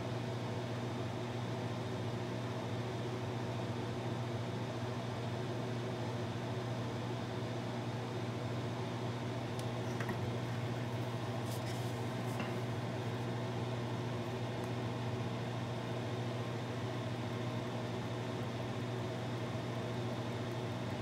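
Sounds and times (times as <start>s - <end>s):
exhaust fan humming: 8.8s - 21.0s.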